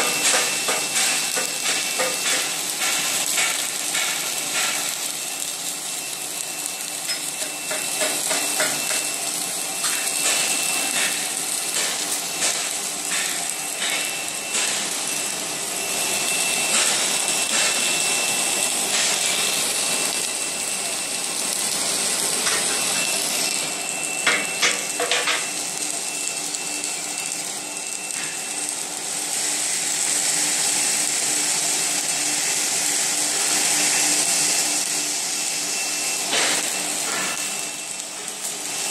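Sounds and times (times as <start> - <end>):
welding hiss: 0.0 - 38.9
clicks and metallic knocks: 24.3 - 25.5.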